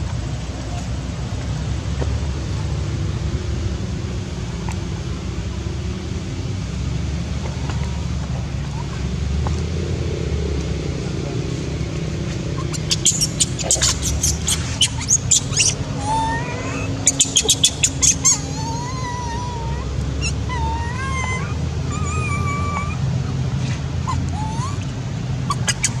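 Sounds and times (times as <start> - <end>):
young monkey shrieking and whimpering: 12.6 - 26.0.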